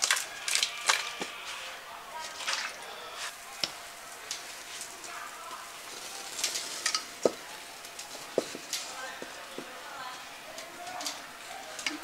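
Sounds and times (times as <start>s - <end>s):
oil sizzling with spitting pops: 3.3s - 10.3s.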